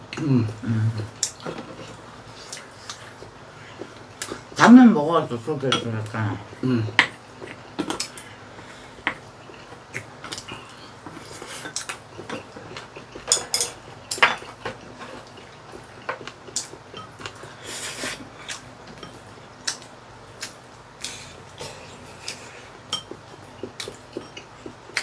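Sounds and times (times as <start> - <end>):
chopsticks and spoons clicking on bowls: 22.2 - 25.0.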